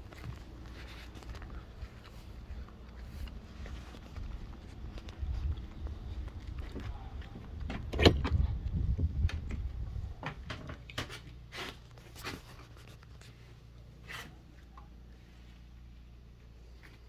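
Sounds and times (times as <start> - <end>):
low rumbling of door: 5.3 - 11.3.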